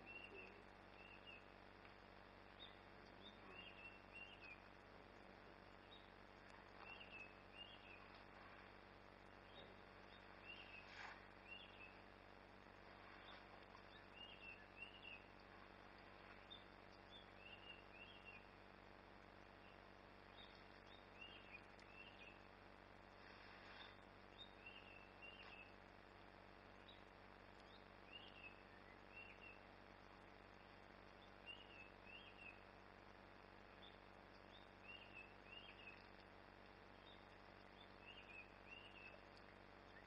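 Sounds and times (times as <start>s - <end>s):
bird chirping faintly: 0.0s - 40.0s
soft rustles: 10.8s - 11.4s, 23.2s - 24.1s.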